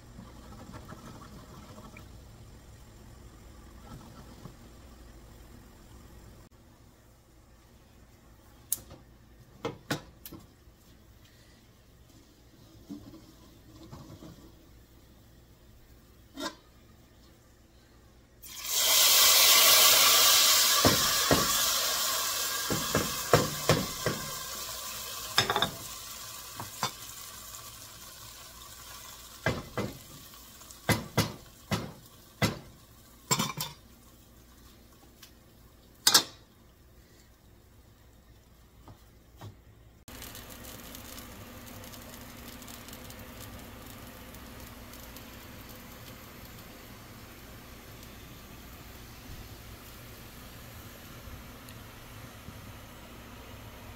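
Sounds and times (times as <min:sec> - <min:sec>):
hot oil sizzling: 0:18.4 - 0:39.2, 0:40.0 - 0:53.9.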